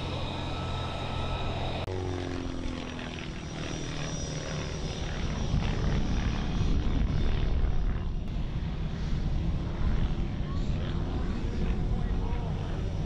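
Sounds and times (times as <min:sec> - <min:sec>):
propeller plane engine droning: 0:00.0 - 0:13.0.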